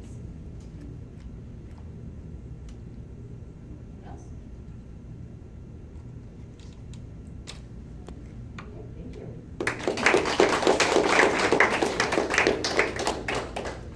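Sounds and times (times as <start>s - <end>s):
audience applause: 9.6s - 13.9s.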